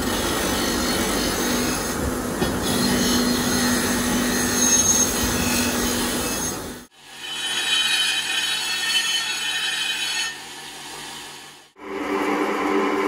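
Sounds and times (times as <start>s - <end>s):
steel rasping against grinder belt: 2.7s - 10.6s.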